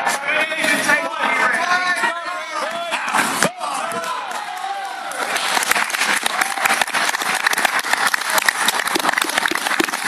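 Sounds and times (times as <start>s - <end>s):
crowd applauding: 4.0s - 10.0s.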